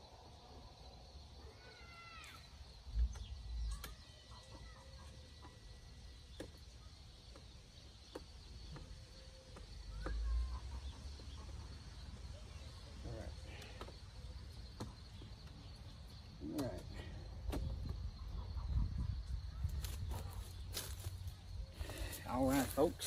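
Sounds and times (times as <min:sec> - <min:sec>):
birds chirping: 0:00.0 - 0:23.0
wind rumble on microphone: 0:17.6 - 0:20.4.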